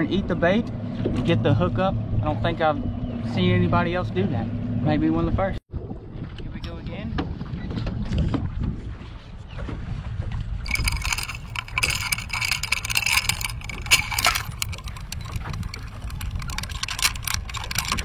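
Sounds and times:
water lapping at a boat: 0.0 - 18.0
wind rumbling on microphone: 5.2 - 18.0.

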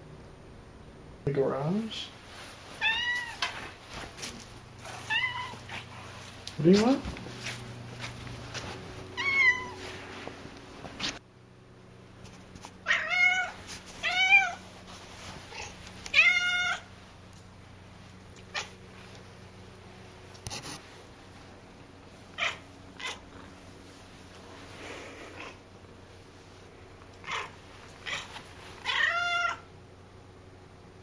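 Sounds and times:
cat meowing loudly: 2.8 - 3.5, 5.1 - 5.8, 9.2 - 9.8, 12.8 - 14.6, 15.5 - 16.9, 27.2 - 29.7.

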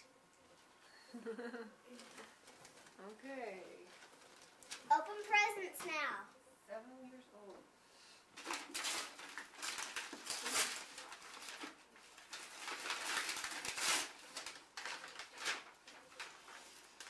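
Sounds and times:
wrapping paper rustling and tearing: 1.9 - 5.7, 8.4 - 17.0.

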